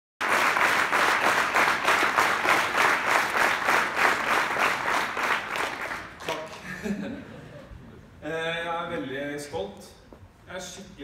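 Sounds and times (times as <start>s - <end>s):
audience applauding rhythmically: 0.2s - 6.7s.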